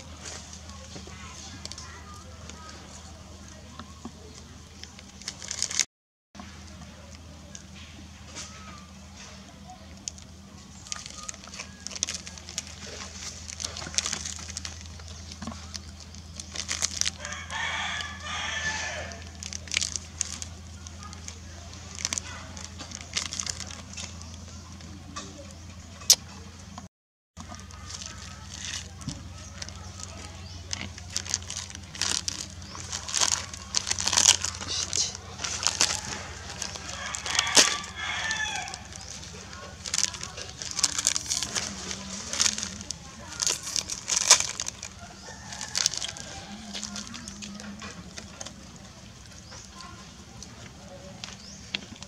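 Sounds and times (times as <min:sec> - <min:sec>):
crinkling rustles of dry material: 0:00.0 - 0:52.0
sharp crackles and clicks: 0:04.3 - 0:05.9, 0:09.6 - 0:26.3, 0:27.4 - 0:52.0
rooster crowing: 0:17.2 - 0:19.3, 0:35.4 - 0:39.1, 0:45.0 - 0:47.8.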